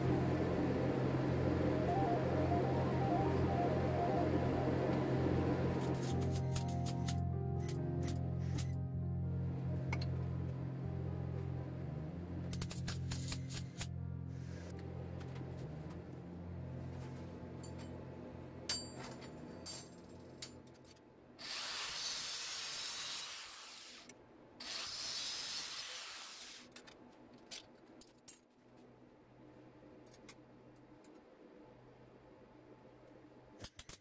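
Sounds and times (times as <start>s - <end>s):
hissing workshop tool: 21.4s - 26.7s.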